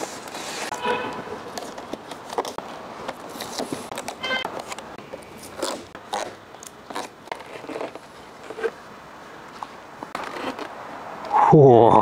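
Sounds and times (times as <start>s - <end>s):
plastic packaging crinkling: 1.4s - 10.7s.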